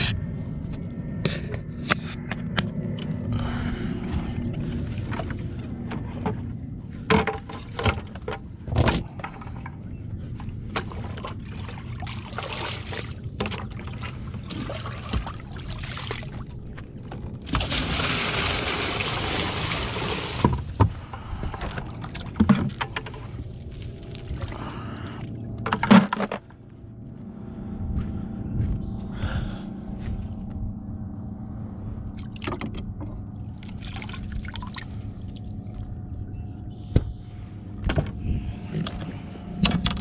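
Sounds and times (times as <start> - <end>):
water poured and splashing: 11.5 - 16.5, 17.5 - 20.6, 33.6 - 35.5.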